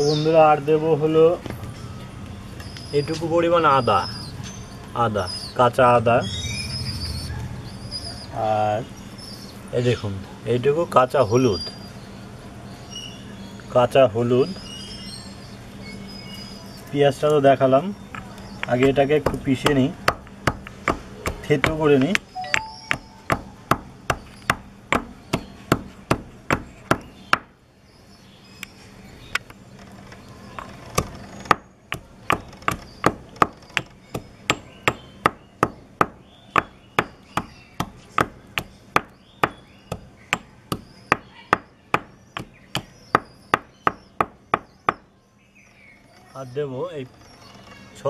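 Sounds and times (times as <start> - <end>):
pestle pounding in a mortar: 18.7 - 22.2, 22.9 - 27.5, 31.0 - 45.0.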